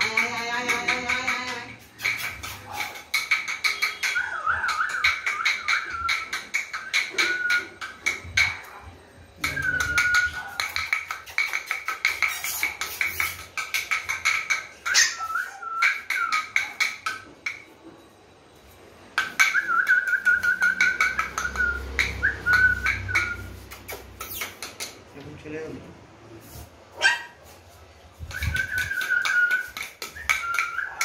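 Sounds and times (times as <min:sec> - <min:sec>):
clicking kissing sounds: 0:00.0 - 0:08.2, 0:10.6 - 0:17.1, 0:20.1 - 0:25.1
person whistling: 0:28.3 - 0:30.9.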